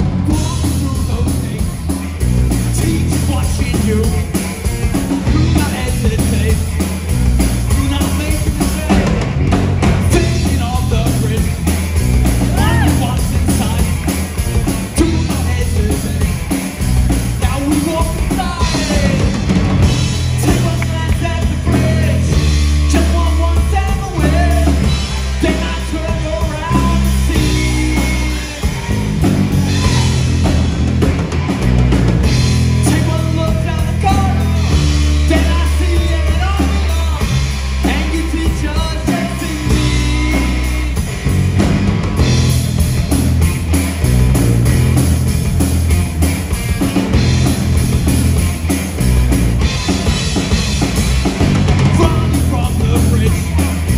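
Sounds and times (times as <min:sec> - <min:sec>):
person singing lead vocal: 0:00.0 - 0:07.0, 0:07.6 - 0:11.8, 0:12.4 - 0:14.1, 0:14.9 - 0:16.5, 0:17.4 - 0:19.5, 0:20.3 - 0:30.5, 0:32.7 - 0:41.1, 0:51.8 - 0:53.9
drum kit: 0:00.0 - 0:53.9
punk rock band playing live: 0:00.0 - 0:53.9.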